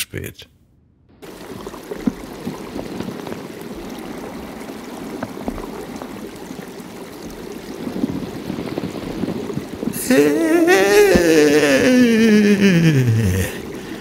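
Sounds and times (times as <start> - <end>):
gravel clicking on stream bed: 1.2 - 11.8
stream water rushing: 1.2 - 14.0.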